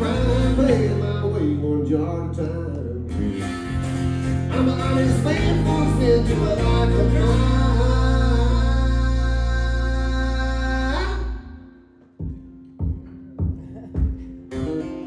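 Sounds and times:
man singing: 0.0 - 3.8, 4.4 - 11.6, 14.5 - 15.0
strummed acoustic guitars: 0.0 - 11.2, 12.2 - 15.0
electric bass: 0.0 - 11.7.

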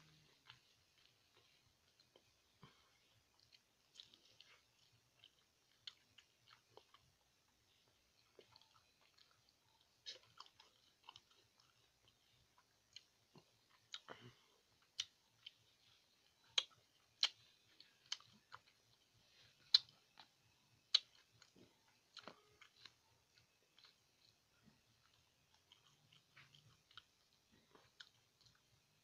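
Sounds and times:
wet chewing mouth clicks and smacks: 8.3 - 24.4.

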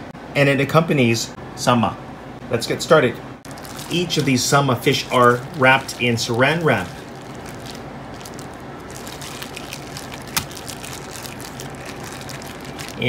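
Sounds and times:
cling wrap crinkling: 3.4 - 13.0.

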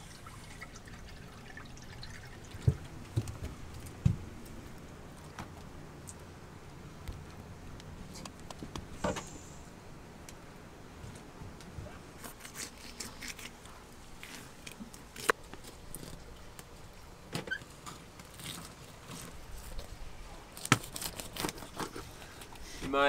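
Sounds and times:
knife crunching through fish skin: 12.2 - 13.7, 20.5 - 22.1.

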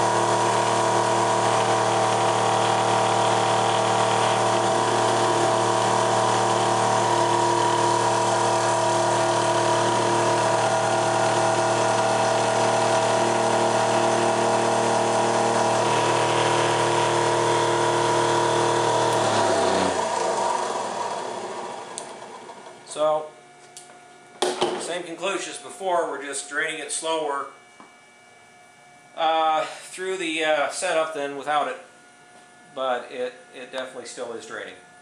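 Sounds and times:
electric motor humming and whining: 0.0 - 24.5.

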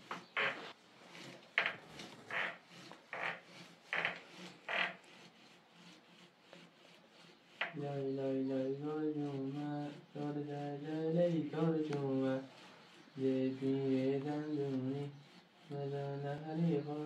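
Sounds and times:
fabric scrubbed by hand: 8.8 - 16.5.

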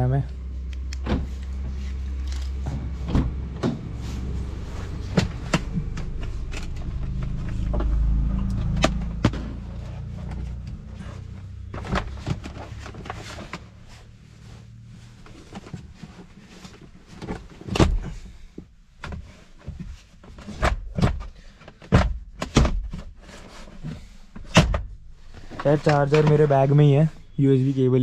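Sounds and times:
low steady rumble: 0.0 - 20.3.

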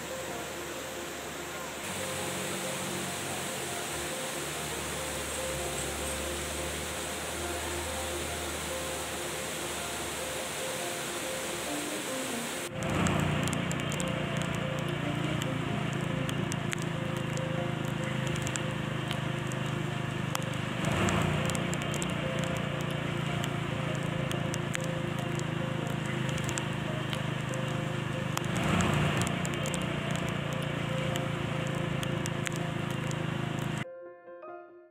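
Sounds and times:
vehicle engine and tyre noise: 0.0 - 33.8
raindrops hitting glass: 12.7 - 33.8.

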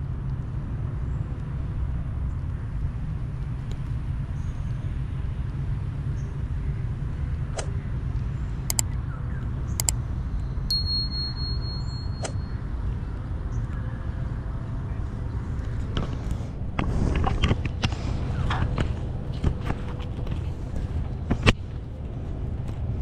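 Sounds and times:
steady low rumble: 0.0 - 23.0
sharp clicks: 8.7 - 9.0, 9.7 - 10.0
high whistle-like tone: 10.7 - 12.6.

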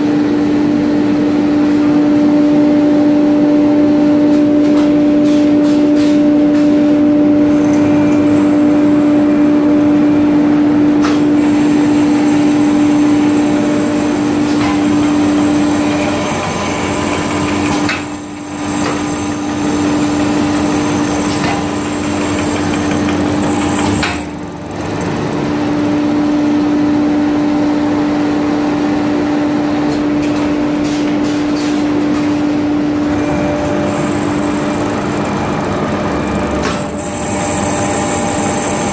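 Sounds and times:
working mechanism noise: 7.3 - 9.8, 11.0 - 26.9, 29.8 - 38.9
machine motor hum: 7.3 - 28.1, 32.0 - 38.9.

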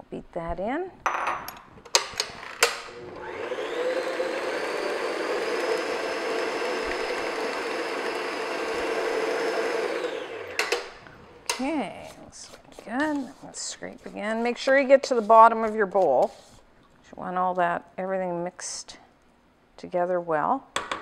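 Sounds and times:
stand mixer motor running: 3.0 - 11.0
mixer head clicks and knocks: 10.5 - 11.7.

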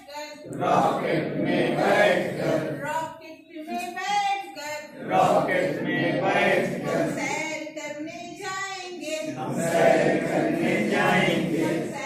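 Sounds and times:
group of adults singing: 0.0 - 3.0, 4.9 - 7.4, 9.2 - 12.0.

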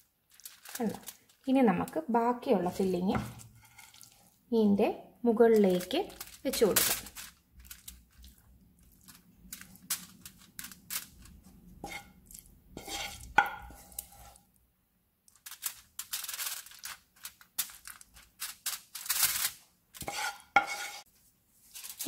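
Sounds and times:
aluminium foil rustling: 0.0 - 4.4, 5.4 - 14.5, 15.3 - 22.0
spoon scraping and patting filling: 2.6 - 4.5, 5.6 - 14.6, 15.3 - 22.0.

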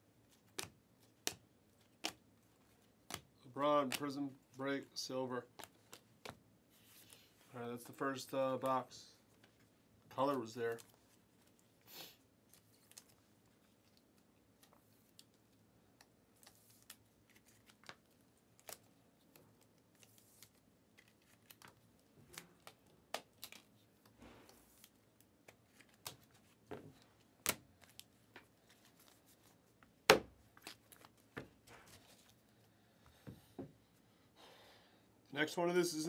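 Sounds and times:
trading cards clicking and rustling: 0.3 - 4.4.

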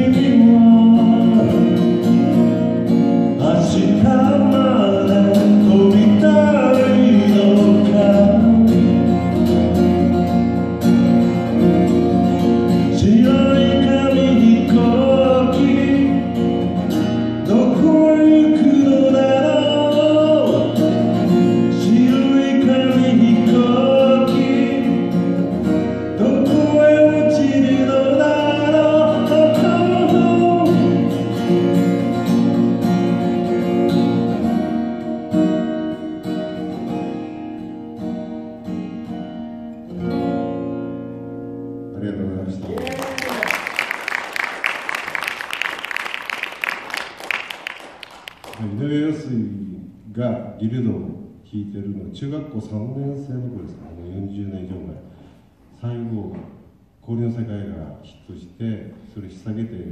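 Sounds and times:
man singing folk song: 0.0 - 34.4
acoustic guitar strumming: 0.0 - 48.9.

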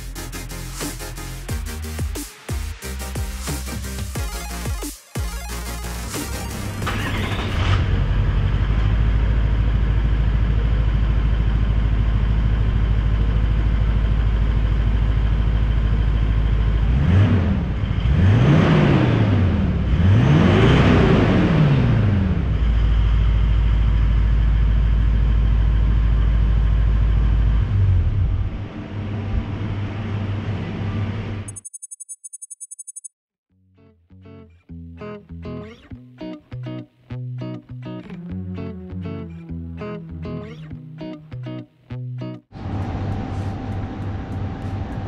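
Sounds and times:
diesel engine idling and revving: 5.4 - 31.5, 42.5 - 45.0.

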